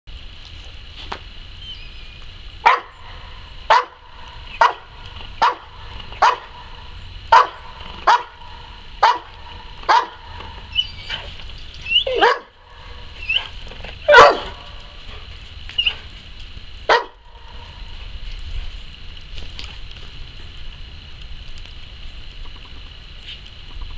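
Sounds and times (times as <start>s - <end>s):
dog barking: 2.6s - 2.9s, 3.7s - 6.7s, 7.3s - 10.4s, 12.0s - 12.6s, 13.3s - 14.7s, 16.9s - 17.2s
dog yipping: 6.2s - 6.5s, 7.3s - 8.3s, 9.0s - 9.3s, 9.9s - 12.5s, 13.2s - 14.6s, 15.8s - 16.0s, 16.9s - 17.2s.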